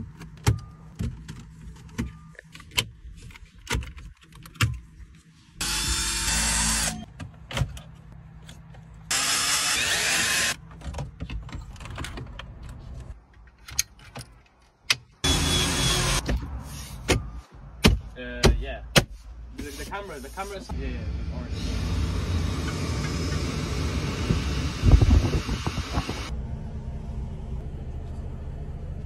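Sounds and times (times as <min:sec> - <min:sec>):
loud steady whirr: 0:09.1 - 0:10.6, 0:15.2 - 0:16.2, 0:20.8 - 0:27.9.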